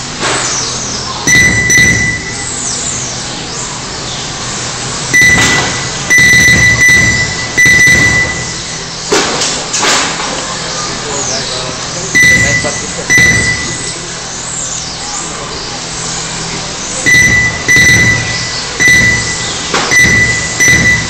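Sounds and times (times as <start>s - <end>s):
lap timer beeping: 1.3s - 2.6s, 5.1s - 8.9s, 12.2s - 14.0s, 17.0s - 21.0s.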